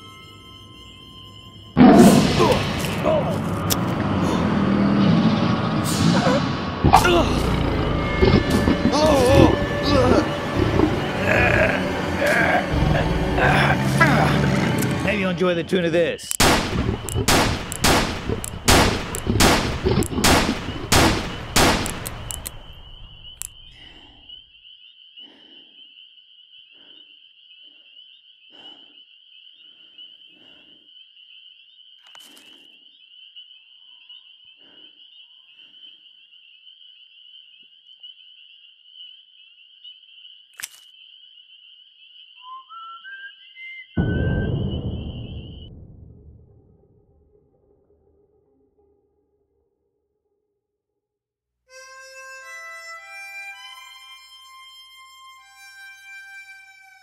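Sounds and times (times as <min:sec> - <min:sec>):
high-pitched ringing tone: 0:00.0 - 0:01.8
sudden loud low sound: 0:44.0 - 0:48.4.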